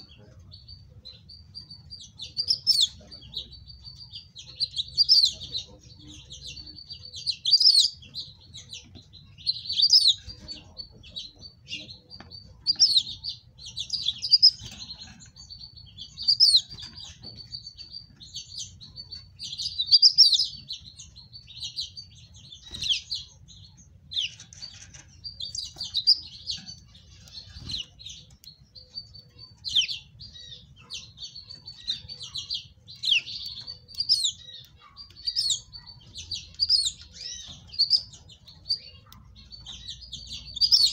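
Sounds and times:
finches chirping: 0.0s - 40.9s.

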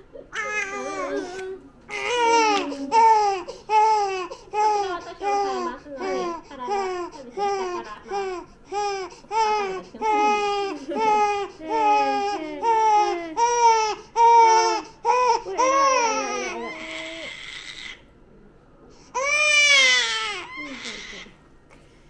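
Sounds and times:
baby crying in wails: 0.4s - 18.0s, 19.2s - 21.3s.

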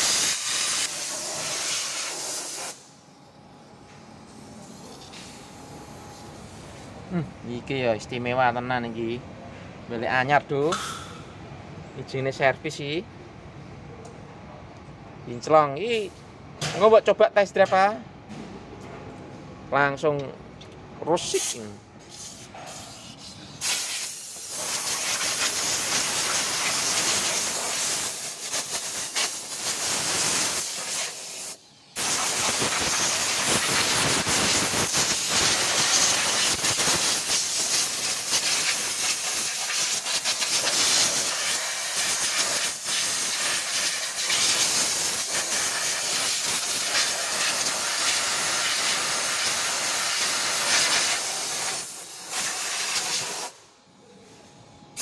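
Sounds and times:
spray gun hissing: 0.0s - 2.9s, 21.4s - 53.5s.

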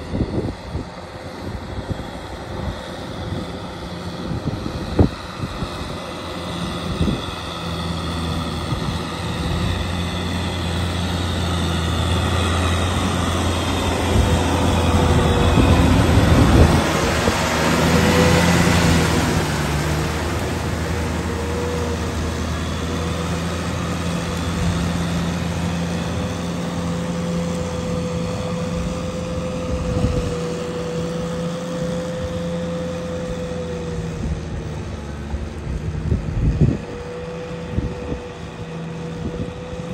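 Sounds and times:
rotary tiller churning water: 0.0s - 39.9s
tractor engine running under load: 0.0s - 39.9s.

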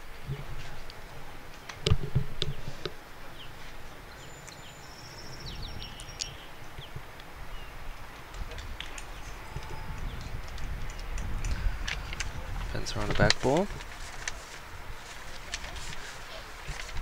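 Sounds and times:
birds chirping: 0.0s - 13.7s
thin whistled bird notes: 3.3s - 6.9s, 8.8s - 11.6s.

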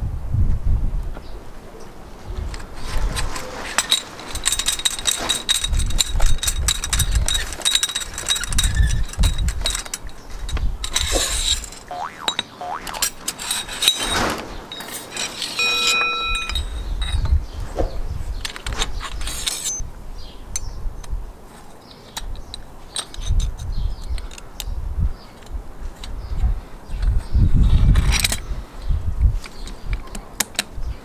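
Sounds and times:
wind rumbling on microphone: 0.0s - 3.8s, 5.5s - 13.2s, 16.4s - 21.4s, 22.3s - 31.0s
ringing metallic ping: 15.6s - 16.9s.

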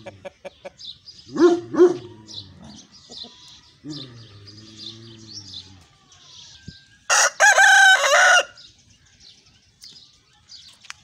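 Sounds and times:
small birds chirping: 0.0s - 11.0s
rooster crowing: 7.1s - 8.6s.

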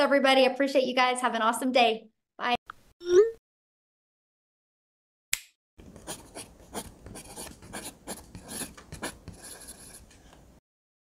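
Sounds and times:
scratching and rubbing strokes: 5.9s - 10.2s.

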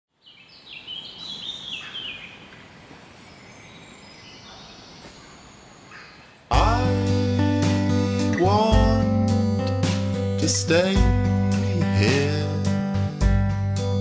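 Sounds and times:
wild birds chirping: 0.1s - 8.4s
soft outdoor hiss: 0.1s - 9.6s
acoustic guitar strummed chords: 6.5s - 14.0s.

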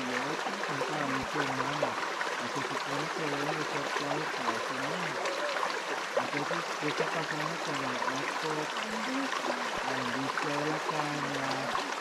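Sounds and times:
person talking: 0.0s - 12.0s
stream trickling over rocks: 0.0s - 12.0s.

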